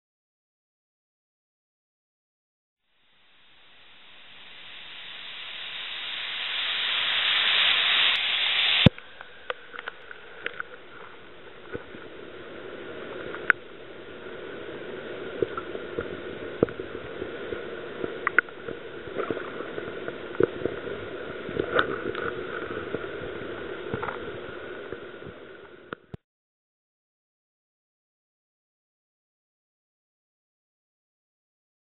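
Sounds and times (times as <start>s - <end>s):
waterfall rushing: 3.6s - 8.9s
muffled underwater moving water: 3.6s - 26.2s.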